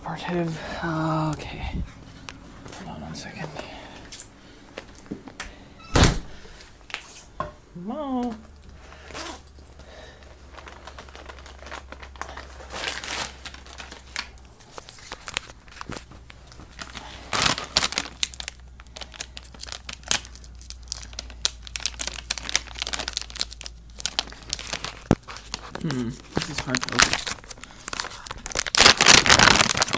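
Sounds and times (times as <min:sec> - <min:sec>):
packaging crackling and rustling: 0:08.3 - 0:29.9.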